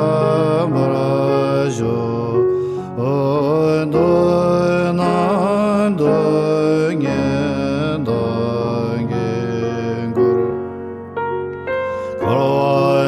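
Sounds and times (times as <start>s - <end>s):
man chanting: 0.0s - 10.3s, 12.2s - 13.0s.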